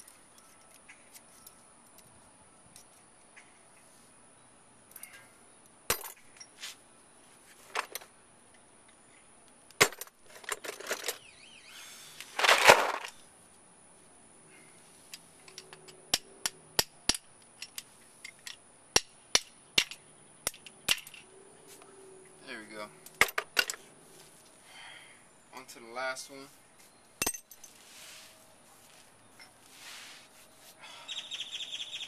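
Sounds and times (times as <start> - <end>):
tool clatter: 9.8 - 11.2.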